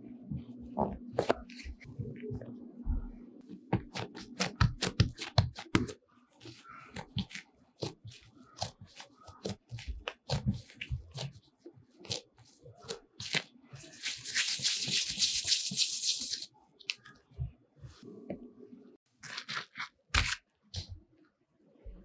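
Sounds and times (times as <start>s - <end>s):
hands patting bread dough: 3.5s - 6.0s.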